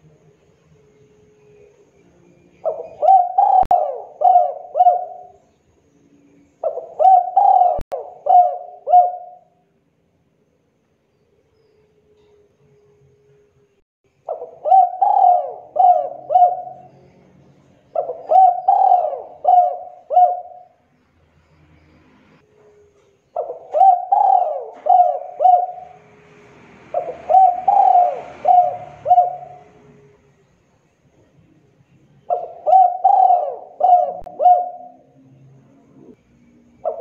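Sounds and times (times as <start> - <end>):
dove cooing: 2.6 - 5.5, 6.6 - 9.6, 14.3 - 17.0, 17.9 - 20.8, 23.4 - 26.1, 26.9 - 30.2, 32.2 - 35.2.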